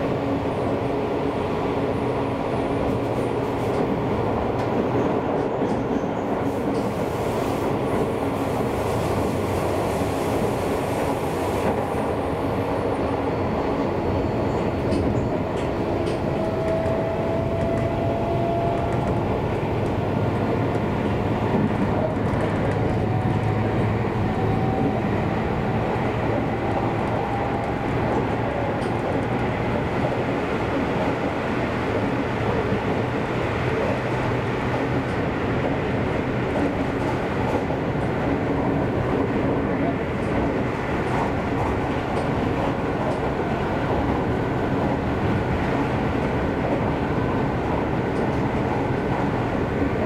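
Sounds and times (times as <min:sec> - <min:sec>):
train wheels rumbling on rail: 0:00.0 - 0:50.0.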